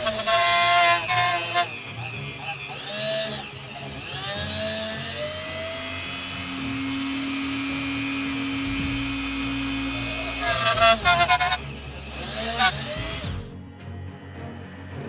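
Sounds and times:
cutting tool harsh pulses: 0.0s - 13.6s
metal lathe humming: 0.0s - 15.0s.

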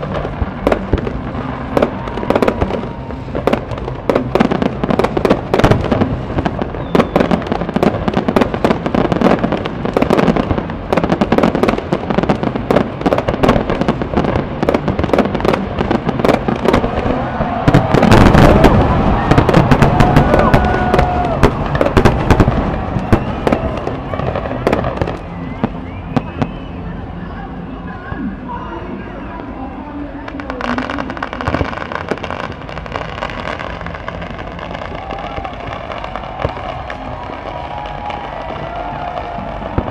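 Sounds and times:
fireworks whistles: 0.0s - 27.0s
fireworks bursts and crackling bangs: 0.0s - 39.9s.

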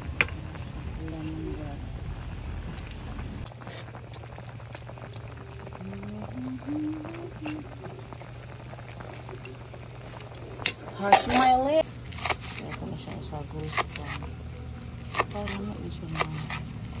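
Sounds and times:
liquid bubbling and popping: 2.0s - 12.5s.

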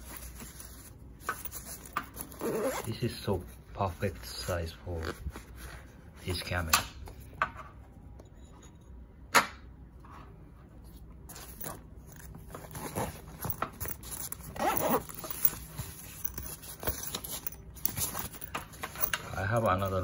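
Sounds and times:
fabric rustling and scraping: 0.0s - 7.2s, 10.0s - 20.0s
pouch clicking: 11.3s - 19.3s.

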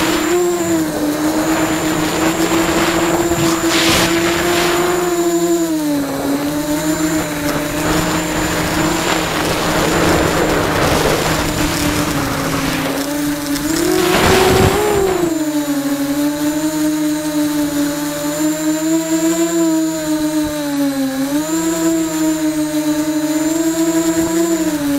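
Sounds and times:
rush of air: 0.0s - 15.3s
drone motors whining: 0.0s - 24.9s.

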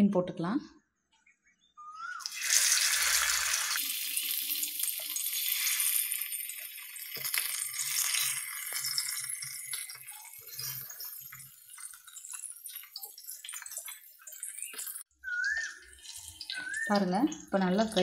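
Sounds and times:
fish sizzling in hot oil: 2.1s - 17.8s.

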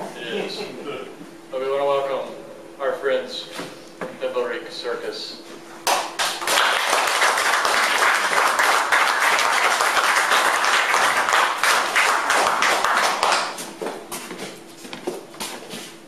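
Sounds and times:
audience applauding: 5.9s - 13.6s.

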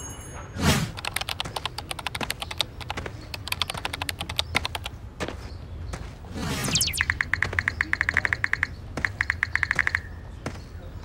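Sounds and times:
keyboard typing: 0.9s - 5.0s, 7.0s - 10.1s.

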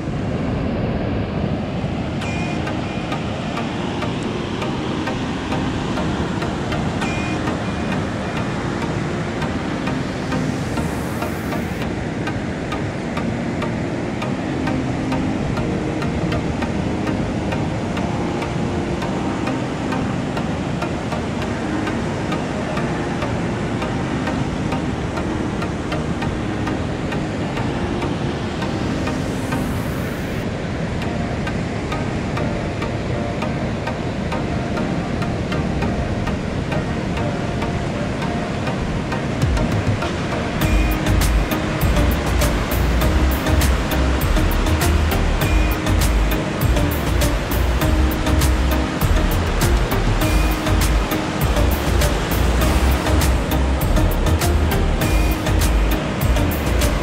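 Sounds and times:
ocean surf: 0.0s - 57.0s
wind: 0.0s - 57.0s.

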